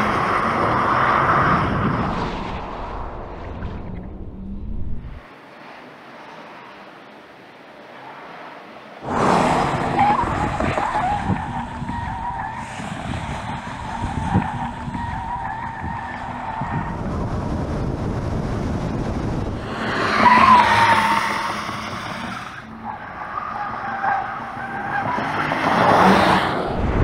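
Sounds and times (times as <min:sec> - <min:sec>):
tyre and wind noise: 0:09.0 - 0:20.4, 0:25.8 - 0:27.0
tyres squealing: 0:09.9 - 0:17.0.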